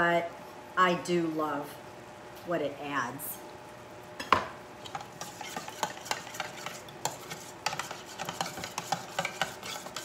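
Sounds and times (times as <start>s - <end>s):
spoon scraping a metal bowl: 4.8s - 10.0s.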